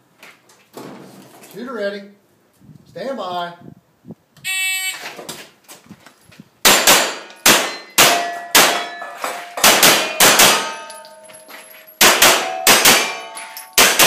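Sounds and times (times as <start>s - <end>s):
pistol shots: 6.6s - 9.0s, 9.6s - 10.9s, 12.0s - 14.0s
steel targets ringing: 6.7s - 14.0s.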